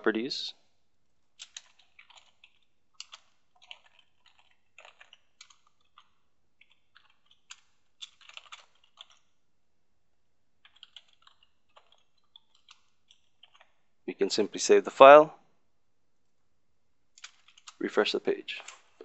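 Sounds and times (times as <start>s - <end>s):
typing on computer keyboard: 1.4s - 9.3s, 10.6s - 13.8s, 17.2s - 17.8s.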